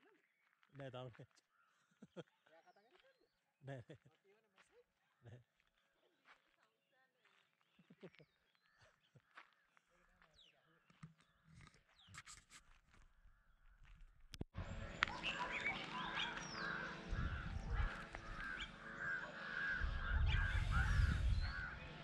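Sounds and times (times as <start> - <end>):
birds calling: 14.6 - 22.0
microphone rumbles: 17.1 - 18.5, 19.8 - 21.7.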